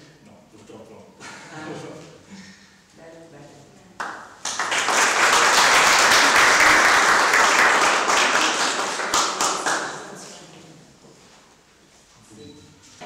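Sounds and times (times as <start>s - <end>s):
audience applauding: 4.0s - 10.2s.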